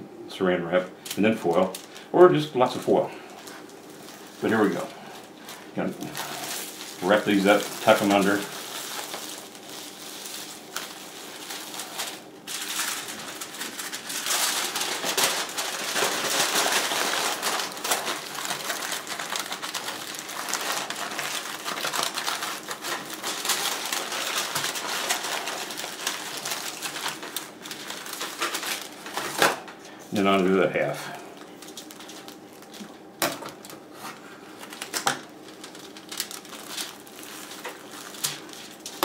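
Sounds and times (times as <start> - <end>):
aluminium foil crinkling: 1.0 - 39.0.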